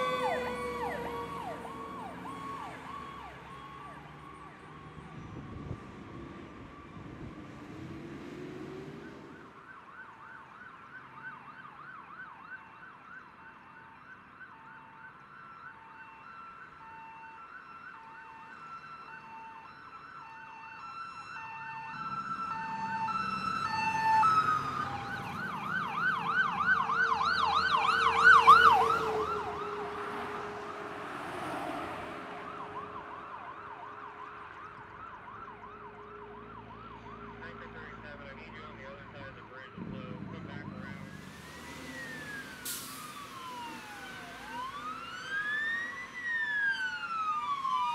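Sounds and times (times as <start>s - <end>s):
truck engine rumble: 0.0s - 10.4s, 21.4s - 47.9s
fire truck siren wailing and yelping: 0.0s - 47.9s.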